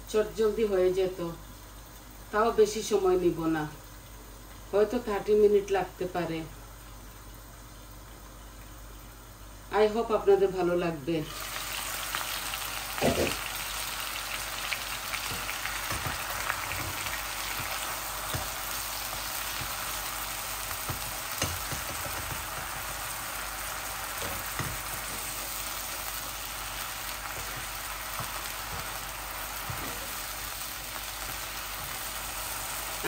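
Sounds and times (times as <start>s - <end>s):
chicken sizzling in frying pan: 11.3s - 33.0s.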